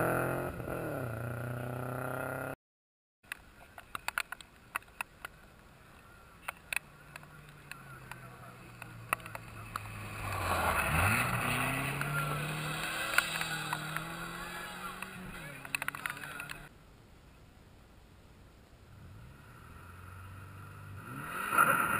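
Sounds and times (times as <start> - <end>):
rally car engine passing: 7.7 - 16.7, 19.0 - 21.9.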